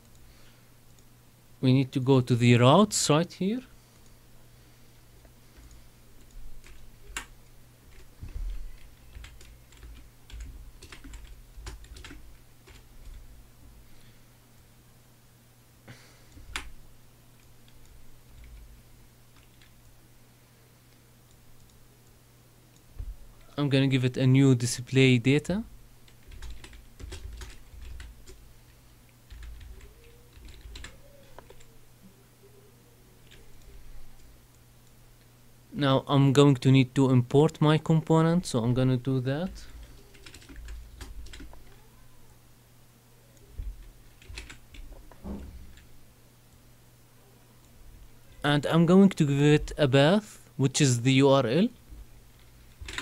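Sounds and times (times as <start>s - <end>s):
faint steady hum: 0.0s - 53.0s
computer keyboard typing: 5.6s - 13.3s, 17.4s - 18.7s, 19.3s - 19.8s, 26.1s - 28.4s, 29.3s - 31.7s, 39.6s - 41.8s, 43.7s - 44.9s, 52.8s - 53.0s.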